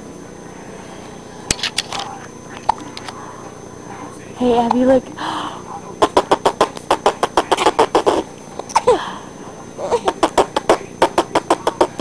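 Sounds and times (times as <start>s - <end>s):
baby squealing: 9.8s - 11.9s
baby laughing: 9.8s - 12.0s.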